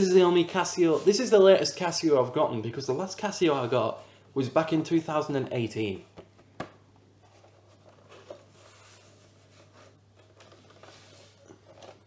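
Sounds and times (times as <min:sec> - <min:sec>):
plastic keyboard handling rustles: 0:06.2 - 0:08.9, 0:10.1 - 0:12.0.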